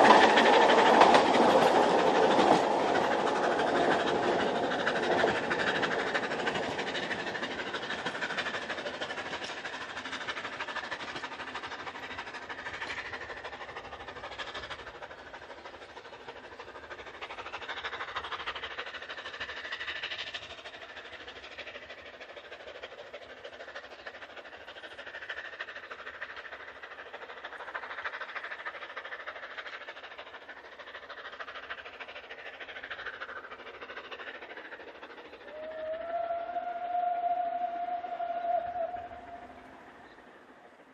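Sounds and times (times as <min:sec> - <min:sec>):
steam train wheels clattering: 0:00.0 - 0:40.9.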